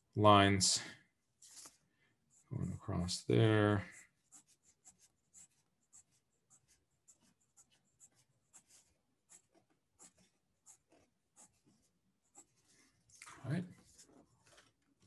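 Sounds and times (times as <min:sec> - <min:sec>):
pencil scratching on paper: 0:03.8 - 0:14.5.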